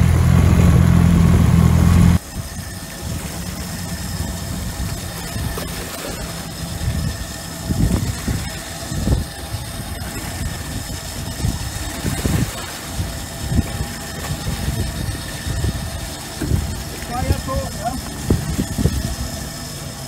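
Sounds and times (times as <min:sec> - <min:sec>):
small outboard motor running: 0:00.0 - 0:20.0
dull low thumps: 0:06.8 - 0:17.0.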